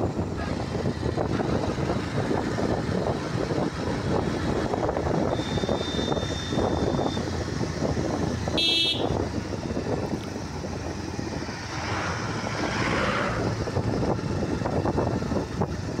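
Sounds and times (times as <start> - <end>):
motorcycle engine running: 0.0 - 11.6
wind buffeting microphone: 0.0 - 16.0
horn toot: 8.5 - 9.2.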